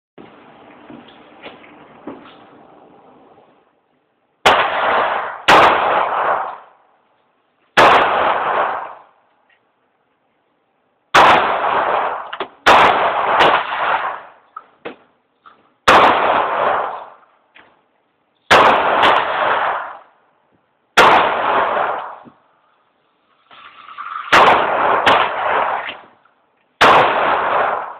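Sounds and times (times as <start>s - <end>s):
gunshot reverberation: 4.4s - 6.8s, 7.8s - 9.2s, 11.2s - 14.4s, 15.9s - 17.2s, 18.5s - 20.1s, 21.0s - 22.4s, 24.2s - 26.2s, 26.8s - 27.9s
pistol shots: 4.4s - 6.8s, 7.8s - 9.2s, 11.1s - 14.4s, 15.8s - 17.2s, 18.5s - 20.1s, 21.0s - 22.3s, 24.2s - 26.2s, 26.8s - 27.9s.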